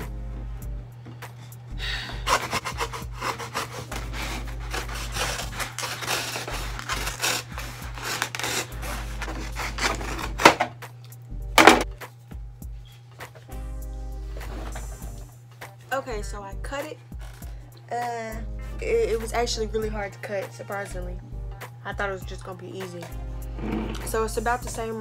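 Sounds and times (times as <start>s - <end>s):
knife sawing through cardboard tube: 2.1s - 10.6s.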